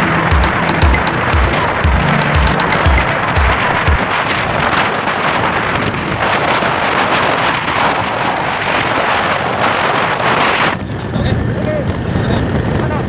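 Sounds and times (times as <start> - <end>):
road noise: 0.0 - 13.0
wind buffeting microphone: 3.0 - 13.0.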